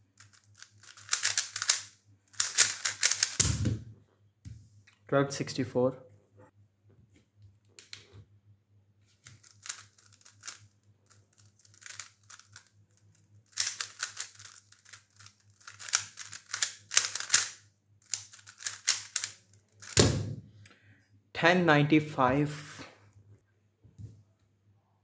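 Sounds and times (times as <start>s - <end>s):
plastic puzzle cube clicking: 0.2s - 3.4s, 9.3s - 20.0s.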